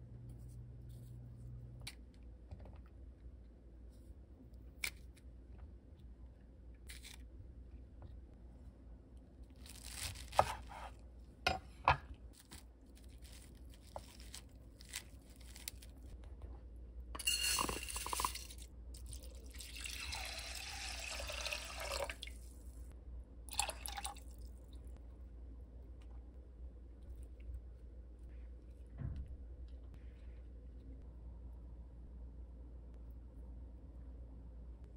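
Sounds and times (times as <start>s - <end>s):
liquid pouring: 17.2s - 22.5s, 23.5s - 24.5s.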